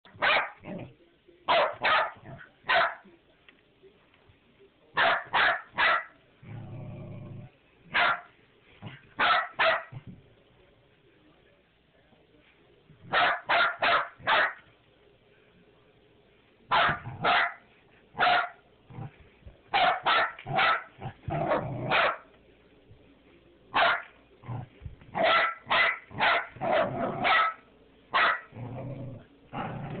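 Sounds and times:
puppy barking: 0.1 - 0.6, 1.5 - 3.0, 5.0 - 6.2, 7.9 - 8.3, 9.2 - 10.0, 13.1 - 14.6, 16.7 - 17.6, 18.2 - 18.6, 19.7 - 22.3, 23.7 - 24.1, 25.2 - 28.5.

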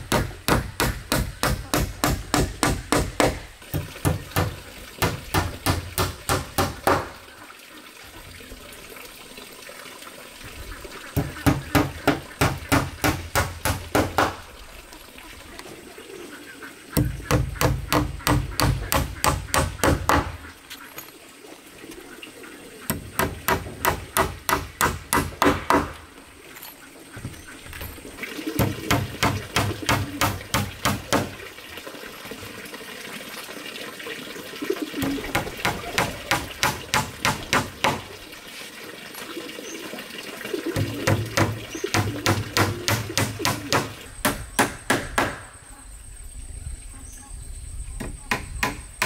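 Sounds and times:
hammer driving nails into wood: 41.1 - 45.4.

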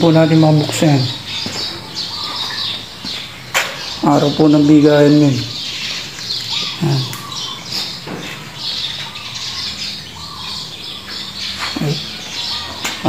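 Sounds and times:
birds chirping and squawking: 0.0 - 13.0.

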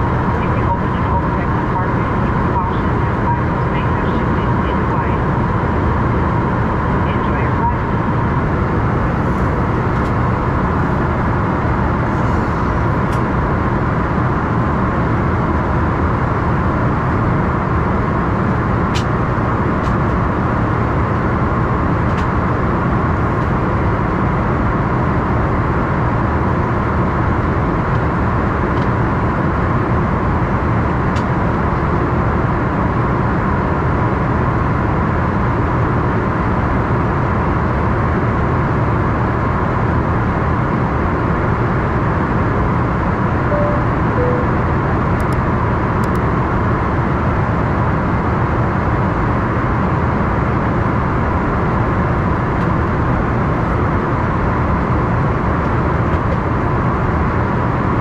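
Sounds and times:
steady hum: 0.0 - 24.0, 43.3 - 46.2
jet cabin rumble: 0.0 - 24.8.

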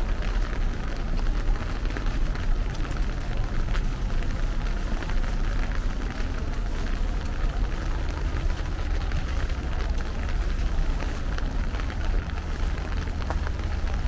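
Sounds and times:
rain falling: 0.0 - 14.0
raindrops ticking: 0.0 - 14.0.

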